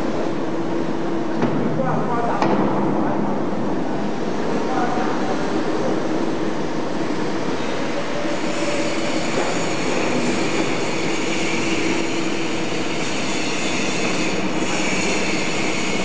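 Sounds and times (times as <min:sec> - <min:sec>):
hydraulic baler running with whine: 0:07.7 - 0:16.0.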